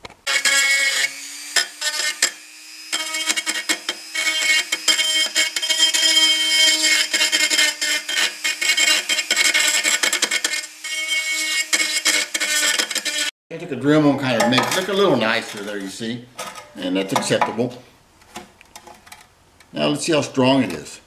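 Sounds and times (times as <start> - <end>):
bit grinding metal: 0.2 - 13.3
rotary tool motor whine: 0.3 - 13.3.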